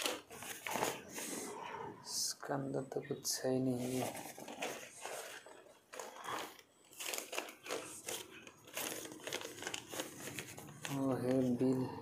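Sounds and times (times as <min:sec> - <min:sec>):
packaging crinkling and rustling: 0:00.0 - 0:01.3, 0:03.8 - 0:11.8.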